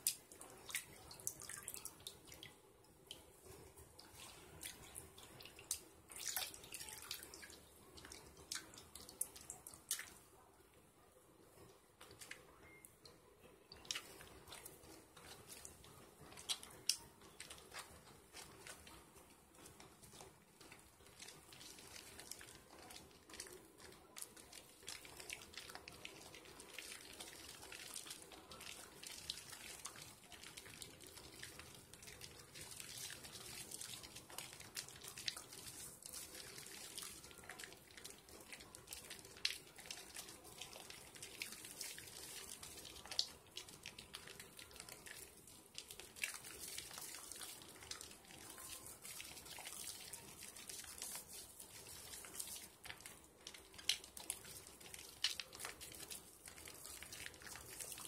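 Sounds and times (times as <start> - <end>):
wet hands rubbing soap lather: 0.0 - 10.2, 13.7 - 58.0
crackling foam clicks: 50.6 - 58.0.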